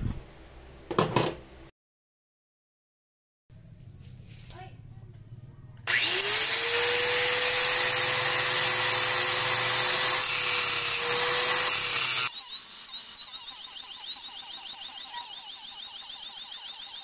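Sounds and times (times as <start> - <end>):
angle grinder running: 5.9 - 17.0.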